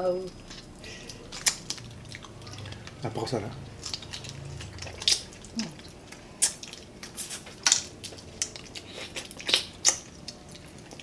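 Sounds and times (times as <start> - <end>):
crab shell cracking: 0.4 - 3.0, 3.8 - 11.0
mouth smacks: 3.8 - 7.8, 8.4 - 10.1.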